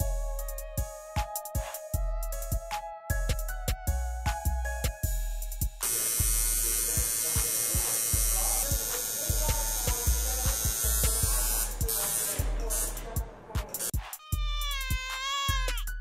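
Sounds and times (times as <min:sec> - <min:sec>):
background music with beat: 0:00.0 - 0:16.0
tattoo machine buzzing: 0:05.6 - 0:13.0.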